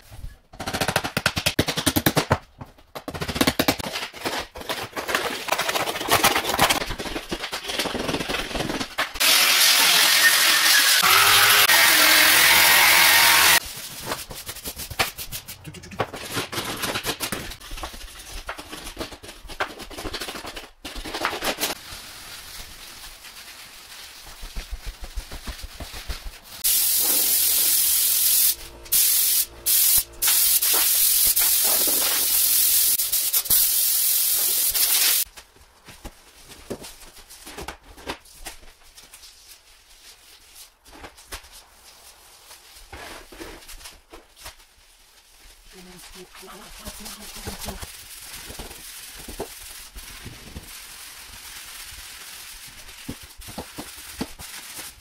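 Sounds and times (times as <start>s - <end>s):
power sander hissing: 9.2s - 13.6s
hand sanding wooden floor: 9.2s - 15.3s.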